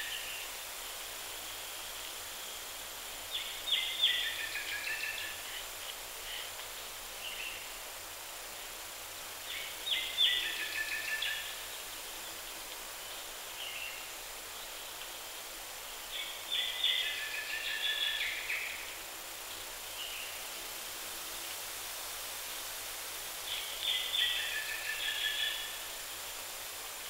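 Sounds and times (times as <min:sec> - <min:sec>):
steady hiss: 0:00.0 - 0:27.0
songbird singing: 0:01.6 - 0:06.6, 0:09.4 - 0:20.4, 0:23.4 - 0:26.0.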